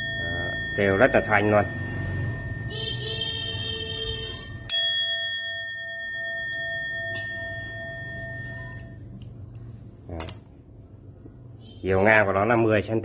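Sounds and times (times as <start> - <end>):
bowl bell strike: 0.0 - 2.8, 4.7 - 9.1
metal bowl bell ringing: 0.0 - 3.6, 4.5 - 9.2.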